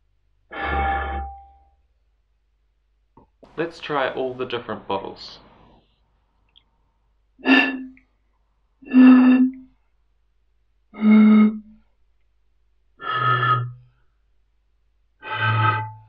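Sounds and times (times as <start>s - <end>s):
blowing across glass bottles: 0.5s - 1.4s, 3.4s - 5.9s, 7.4s - 8.2s, 8.8s - 9.8s, 10.9s - 11.8s, 13.0s - 13.8s, 15.2s - 16.0s.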